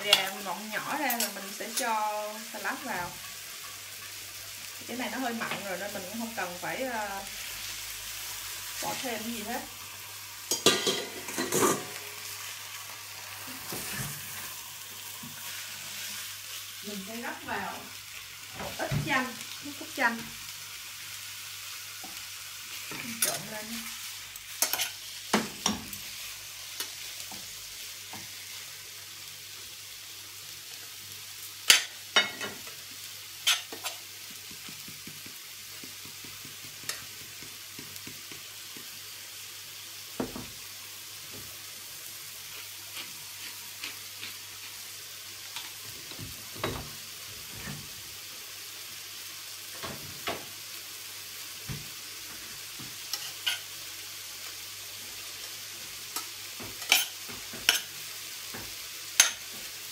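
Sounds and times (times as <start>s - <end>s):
meat sizzling in a frying pan: 0.0s - 59.9s.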